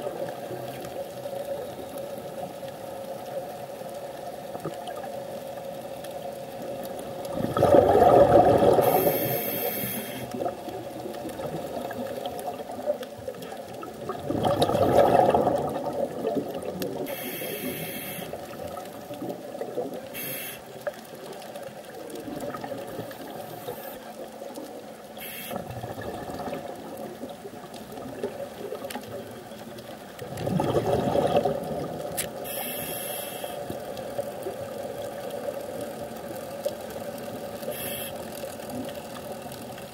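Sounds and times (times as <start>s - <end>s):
gurgling exhaled bubbles: 7.1s - 23.9s, 25.5s - 32.6s
regulator hissing: 8.8s - 10.4s, 17.1s - 18.4s, 20.1s - 20.8s, 32.4s - 33.6s, 37.7s - 38.3s.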